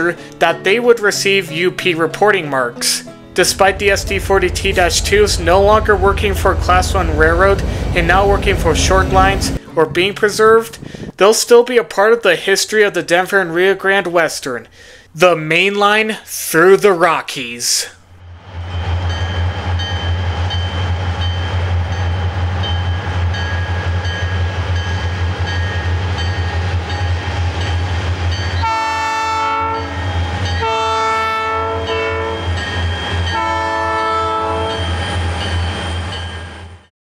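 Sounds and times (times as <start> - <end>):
locomotive whine: 3.2 - 10.2, 18.2 - 36.9
diesel locomotives droning: 3.3 - 11.1, 18.2 - 36.9
locomotive air horn blasts: 28.6 - 32.6, 33.3 - 35.0.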